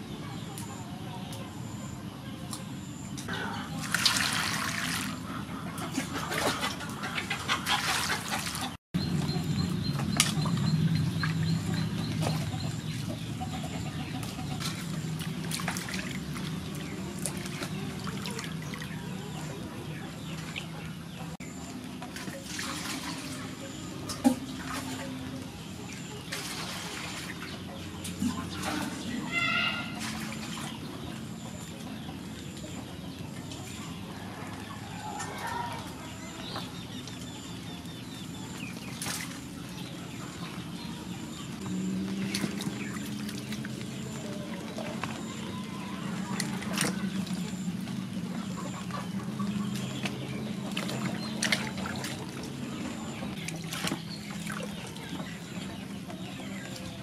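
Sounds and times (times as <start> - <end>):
water pouring and sloshing: 3.2 - 57.0
bird calling: 23.6 - 57.0.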